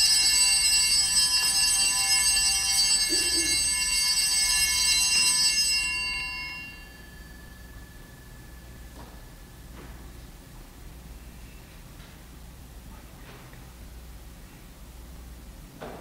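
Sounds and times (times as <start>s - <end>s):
altar bells ringing: 0.0s - 9.8s.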